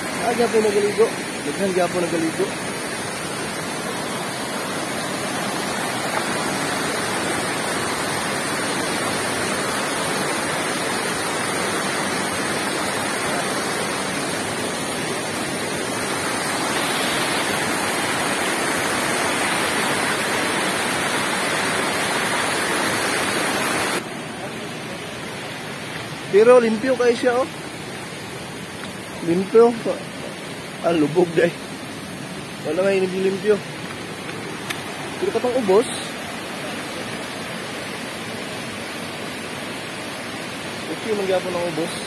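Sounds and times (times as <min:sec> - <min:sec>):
water pouring over falls: 0:00.0 - 0:24.7, 0:25.3 - 0:42.0.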